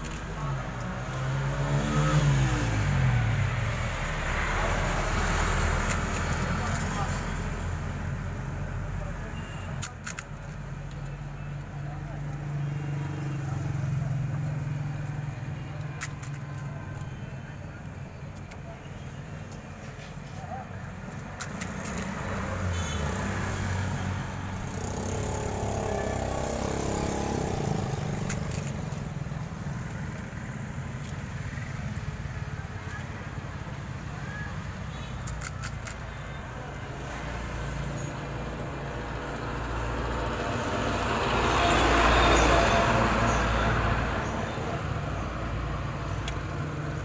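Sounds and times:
vehicle passing: 0.0 - 7.8, 21.8 - 31.1
road traffic engine rumble: 0.0 - 47.0.

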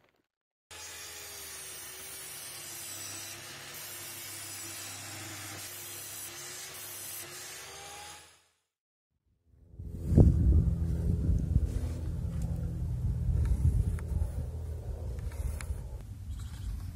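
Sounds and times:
saw blade hissing through wood: 0.7 - 8.5
saw motor humming: 0.7 - 8.6.

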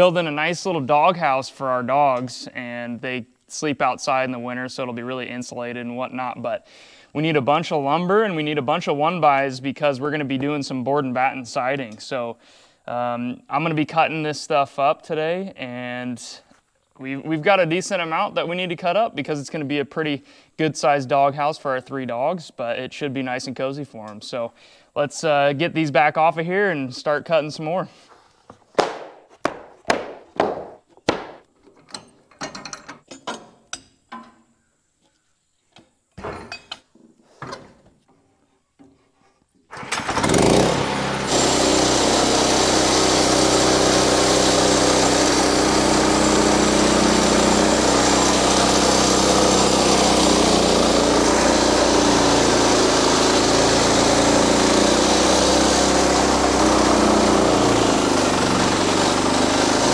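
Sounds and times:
wooden boards clacking: 28.8 - 31.4
sawmill engine running: 39.8 - 59.9.

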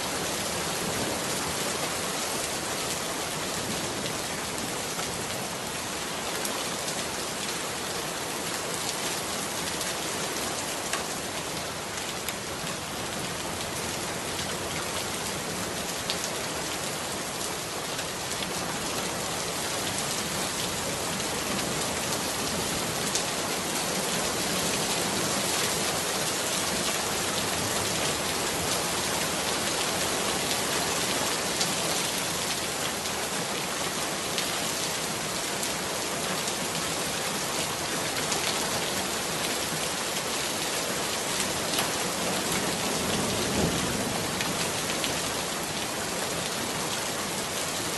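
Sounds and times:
steady rain: 0.0 - 47.9.

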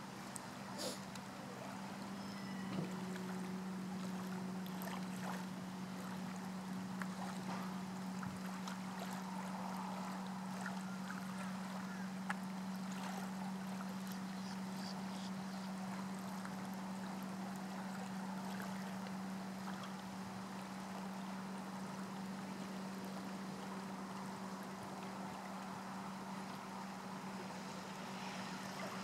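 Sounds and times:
faint background wash: 0.0 - 29.0
faint ticks: 12.2 - 12.5.

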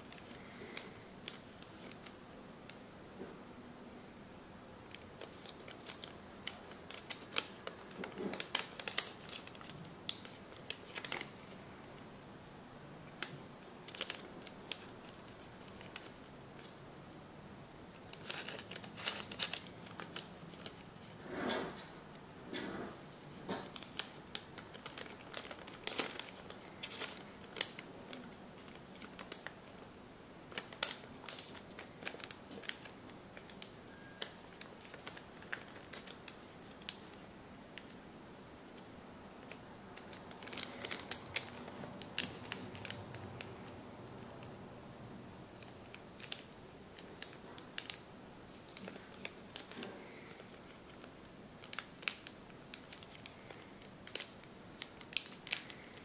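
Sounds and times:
paper crinkling: 0.0 - 2.8, 4.9 - 11.6, 13.1 - 16.8, 17.9 - 21.8, 23.2 - 29.9, 30.5 - 44.5, 45.5 - 56.0
sharp paper crackles: 4.9 - 11.6, 13.1 - 16.8, 17.9 - 21.8, 23.3 - 29.8, 30.5 - 38.0, 38.7 - 43.7, 45.5 - 56.0.

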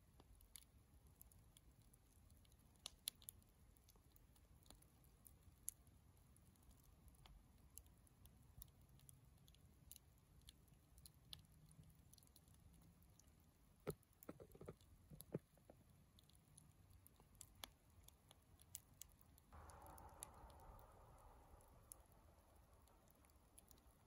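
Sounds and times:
bonfire crackling and popping: 0.0 - 24.0
low rumble: 19.6 - 24.0.

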